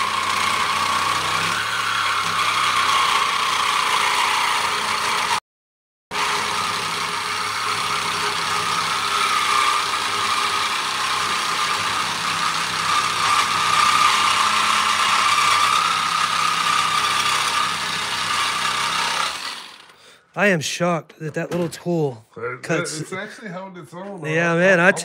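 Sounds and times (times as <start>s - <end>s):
reciprocating saw cutting metal: 0.0s - 5.4s, 6.1s - 20.1s.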